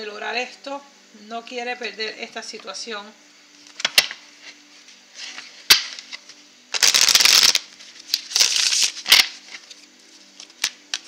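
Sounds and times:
cards rustling and sliding: 3.7 - 11.0.

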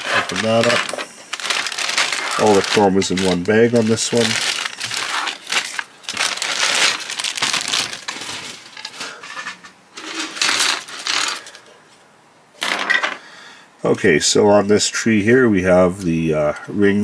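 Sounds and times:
plastic bag crinkling: 0.0 - 9.3, 9.9 - 11.6
plastic parts clattering: 0.0 - 11.7, 12.6 - 13.2.

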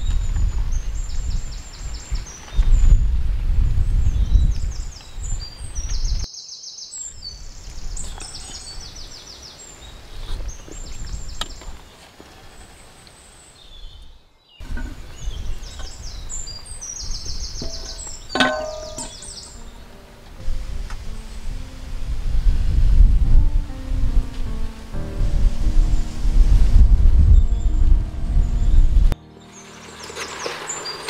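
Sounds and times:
small birds chirping and trilling: 0.0 - 20.0, 28.5 - 31.0
outdoor background noise: 0.0 - 31.0
low rumble: 20.4 - 29.2.

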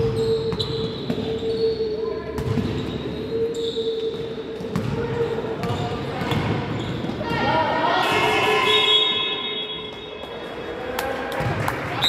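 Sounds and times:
shoe squeaks: 0.0 - 7.2.

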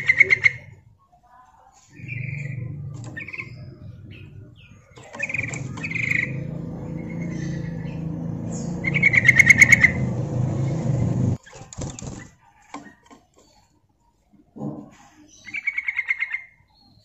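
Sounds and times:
low hum: 2.0 - 11.4
bird chirping: 2.0 - 13.6.

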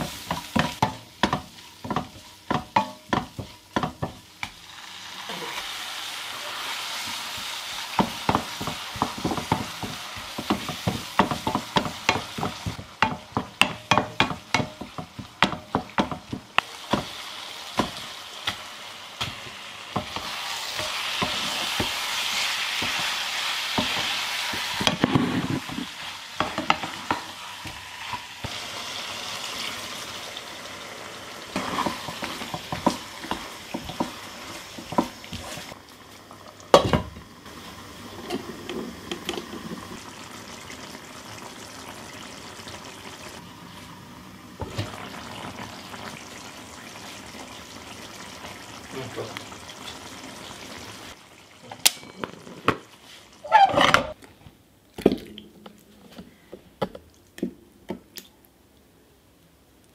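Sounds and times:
oil sizzling: 0.0 - 54.2
wooden spatula scraping pan: 23.8 - 27.3, 31.6 - 35.8, 53.1 - 54.2.

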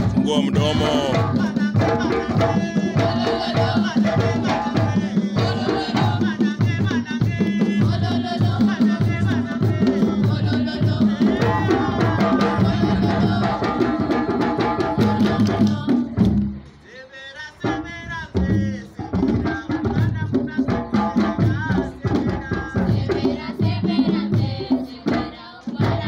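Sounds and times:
drums beating dance rhythm: 0.0 - 16.3
voices singing: 0.0 - 20.6, 21.2 - 26.0.

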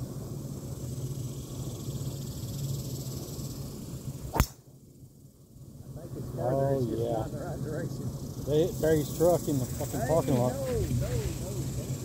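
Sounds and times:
golf club striking ball: 4.3 - 4.6.

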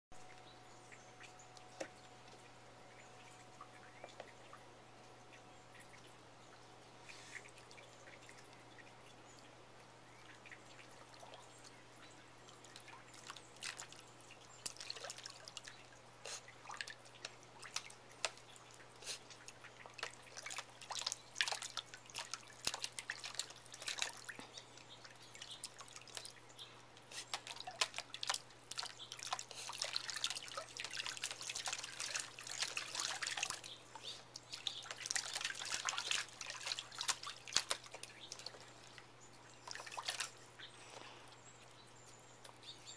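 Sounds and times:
puppy splashing water: 10.1 - 41.0.

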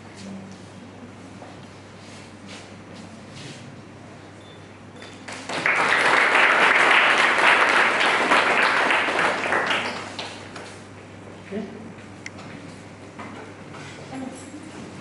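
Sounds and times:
audience applauding: 5.2 - 10.8.

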